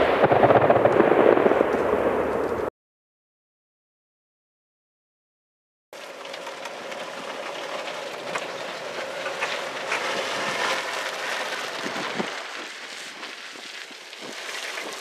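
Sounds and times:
vehicle road noise: 0:06.0 - 0:15.0.

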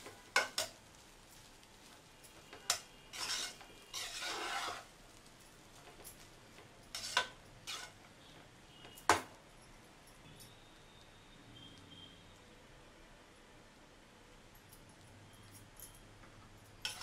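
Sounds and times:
spatula scraping pot: 0:02.6 - 0:04.9, 0:06.9 - 0:08.1.

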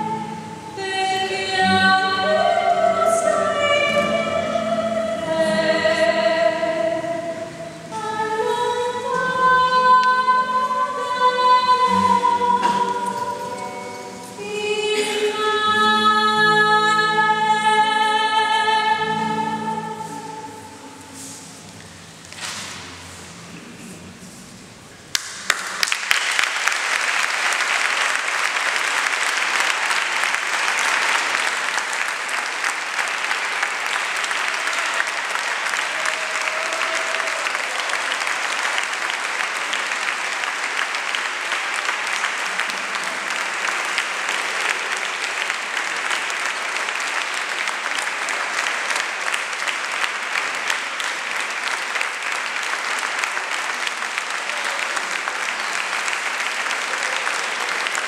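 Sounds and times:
audience applauding: 0:25.1 - 0:58.0.

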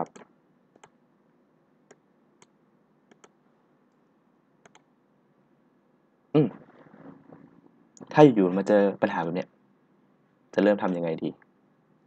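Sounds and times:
computer mouse clicks: 0:00.0 - 0:01.0, 0:03.1 - 0:03.4, 0:04.6 - 0:04.9.

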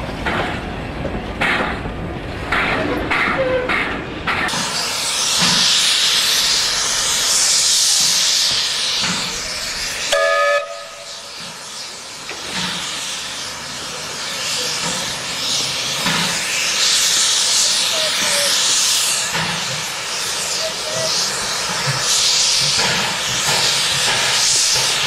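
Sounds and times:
steam hissing: 0:04.4 - 0:25.0
steam whistle toot: 0:10.1 - 0:11.2.

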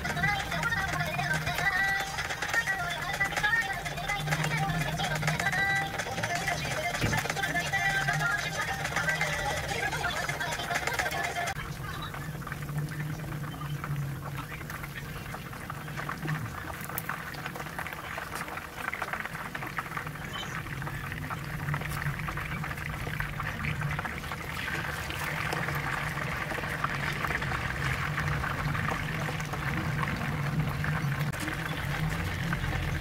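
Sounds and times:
chicken sizzling in hot oil: 0:00.0 - 0:33.0.

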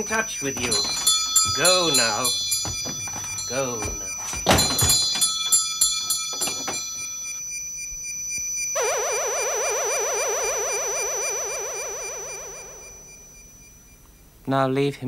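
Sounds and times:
door bell ringing: 0:00.0 - 0:08.0
door knocking shut: 0:00.6 - 0:05.3
warbling synthesizer tone: 0:08.7 - 0:13.7.

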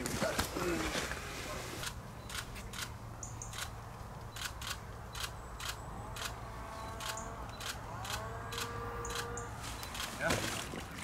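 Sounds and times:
camera shutter clicks: 0:07.0 - 0:09.3.

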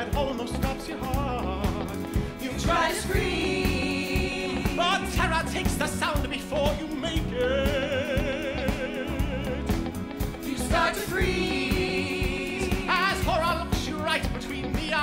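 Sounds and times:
live band music: 0:00.0 - 0:15.0
steady drum beat: 0:00.0 - 0:15.0
voices singing with vibrato: 0:02.2 - 0:06.1, 0:07.2 - 0:14.2.

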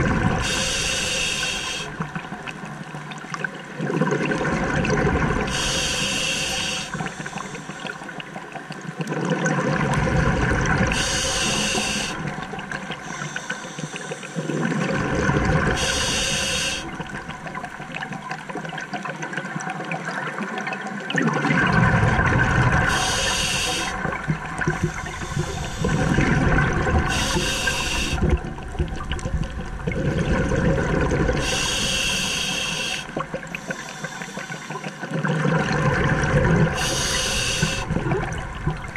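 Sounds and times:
regulator inhalation hiss: 0:00.4 - 0:01.9, 0:05.5 - 0:08.0, 0:10.9 - 0:12.3, 0:13.0 - 0:14.5, 0:15.8 - 0:17.0, 0:22.9 - 0:24.0, 0:24.9 - 0:26.2, 0:27.1 - 0:28.3, 0:31.4 - 0:35.0, 0:36.8 - 0:37.9
bubbling exhalation underwater: 0:21.2 - 0:31.6, 0:35.1 - 0:38.9.

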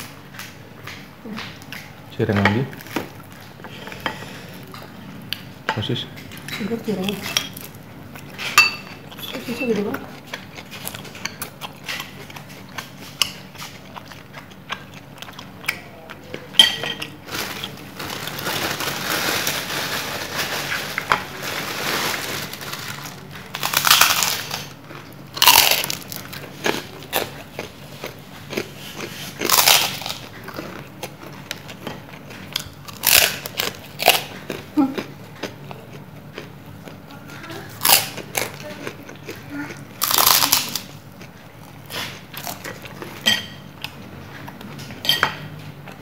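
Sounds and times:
chewing: 0:00.0 - 0:19.0, 0:22.5 - 0:46.0
crunchy bites into crackers: 0:17.2 - 0:37.0, 0:40.0 - 0:43.2.

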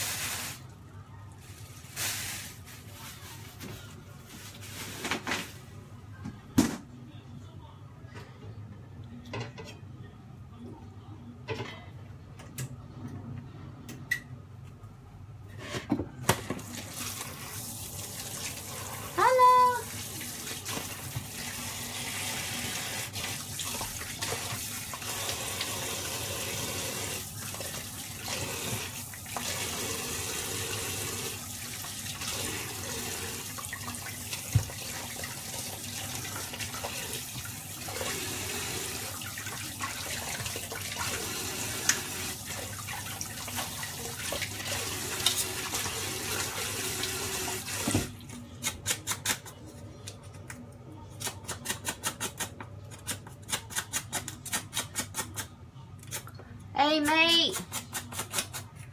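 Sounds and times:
tap running into sink: 0:34.4 - 0:34.8, 0:47.7 - 0:48.2.

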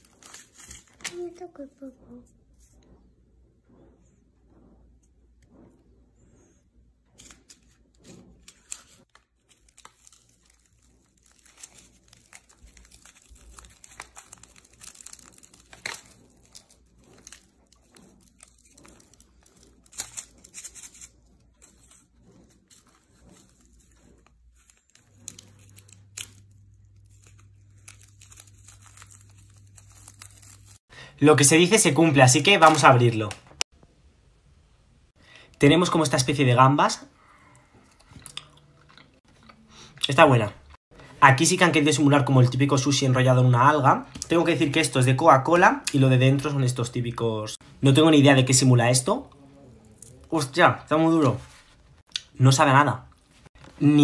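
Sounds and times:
wrappers crinkling and tearing: 0:00.0 - 0:01.2, 0:07.2 - 0:30.9.

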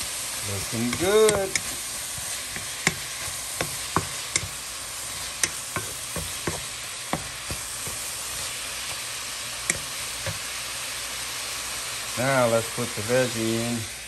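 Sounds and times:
meat sizzling in a frying pan: 0:00.0 - 0:14.0
wooden spatula knocking on pan: 0:00.8 - 0:04.6, 0:05.4 - 0:08.1, 0:09.6 - 0:10.4.

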